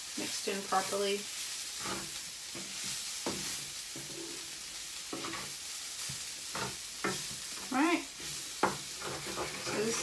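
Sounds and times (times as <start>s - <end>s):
mince sizzling in a frying pan: 0.0s - 10.0s
spatula scraping and knocking pan: 1.7s - 4.5s, 5.1s - 10.0s.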